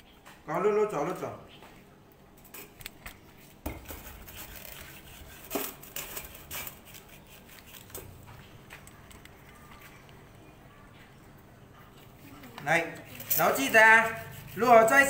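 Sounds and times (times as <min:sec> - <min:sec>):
vegetable peeler scraping root: 0:03.8 - 0:08.1, 0:13.0 - 0:15.0.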